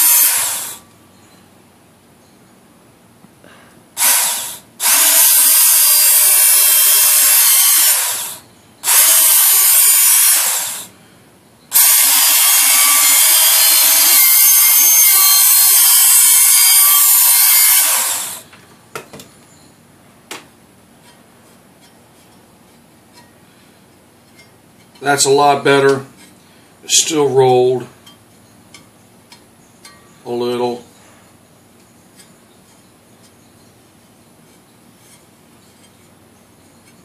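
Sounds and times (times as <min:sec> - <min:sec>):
belt sharpener grinding steel: 0:00.0 - 0:00.8, 0:04.0 - 0:10.9, 0:11.7 - 0:18.5.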